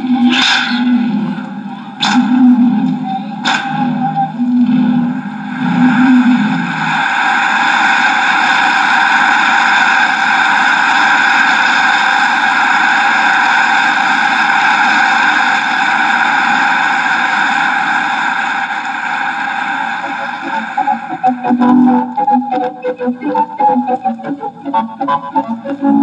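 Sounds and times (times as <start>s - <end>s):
wavering tone: 0.0s - 8.2s, 19.9s - 26.0s
rushing mechanical noise: 0.0s - 26.0s.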